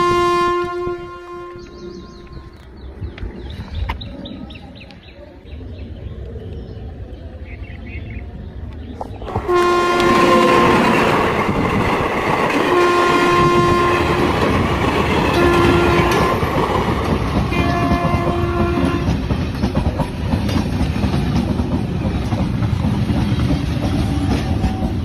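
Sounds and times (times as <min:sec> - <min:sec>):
train horn blasts: 0:00.0 - 0:02.6, 0:09.4 - 0:11.2, 0:12.7 - 0:14.5, 0:15.2 - 0:16.6, 0:17.5 - 0:19.2
train wheels clacking on rails: 0:09.0 - 0:25.0.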